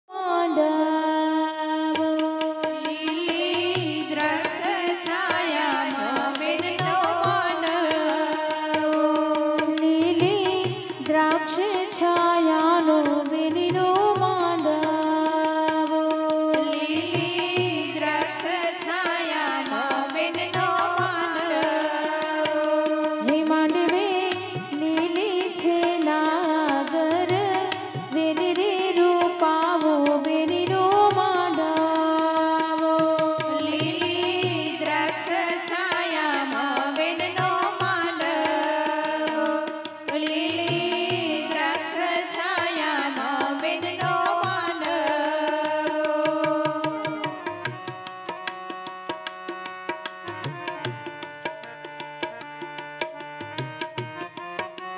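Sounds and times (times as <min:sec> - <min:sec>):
women singing into microphones: 0:00.1 - 0:54.9
percussion beat: 0:02.0 - 0:54.9.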